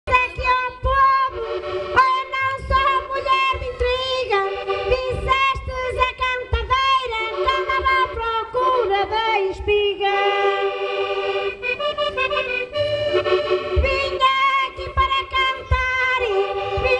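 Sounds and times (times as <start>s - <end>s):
live folk band music: 0.1s - 16.9s
amplified held melody notes: 6.9s - 16.9s.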